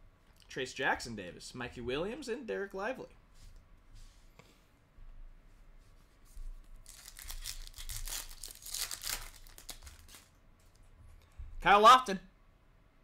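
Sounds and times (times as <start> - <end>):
wrapper tearing and crinkling: 6.8 - 10.4.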